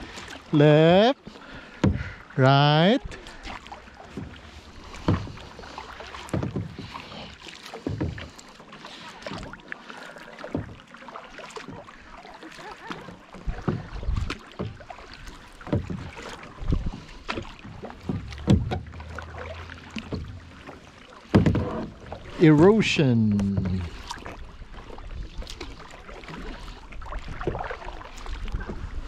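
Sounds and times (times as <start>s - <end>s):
paddle swishing through water: 0.0s - 29.0s
water lapping against hull: 0.0s - 29.0s
low knocks: 4.1s - 5.5s, 17.7s - 22.2s.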